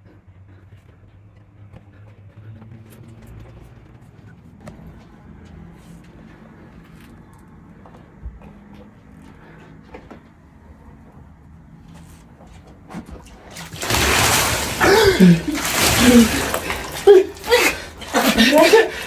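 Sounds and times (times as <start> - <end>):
water splashing onto bedding: 13.0 - 19.0.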